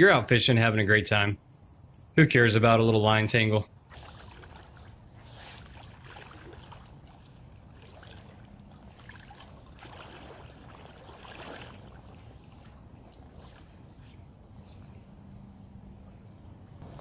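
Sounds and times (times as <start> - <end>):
water sloshing and splashing: 2.9 - 14.7.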